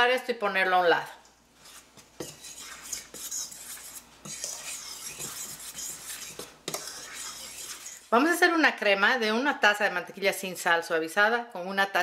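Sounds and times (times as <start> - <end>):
fork stirring flour in metal bowl: 1.6 - 8.2.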